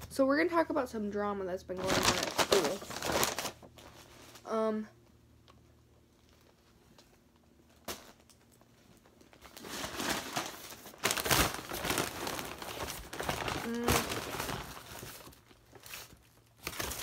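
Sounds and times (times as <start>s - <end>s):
paper bag crinkling: 1.8s - 4.5s, 7.7s - 17.0s.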